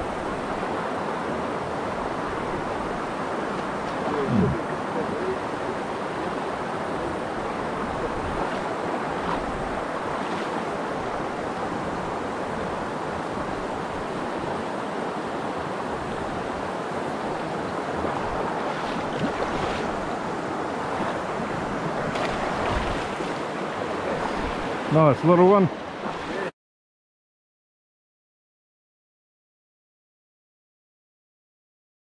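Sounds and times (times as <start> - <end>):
stream running over stones: 16.4 - 26.5.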